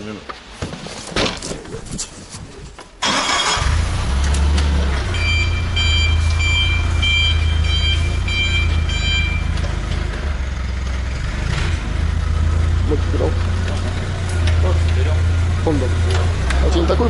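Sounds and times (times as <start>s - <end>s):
forklift engine humming: 3.0s - 17.0s
warning alarm beeps: 5.1s - 9.7s.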